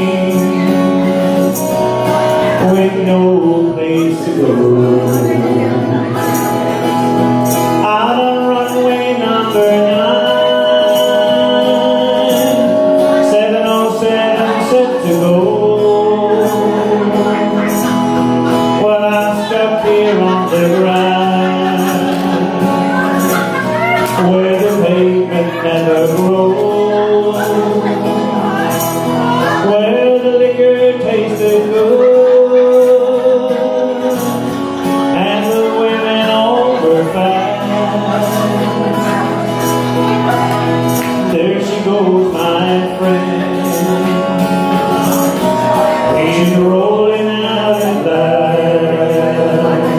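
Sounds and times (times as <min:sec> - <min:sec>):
acoustic guitar: 0:00.0 - 0:49.9
man singing: 0:00.0 - 0:49.9.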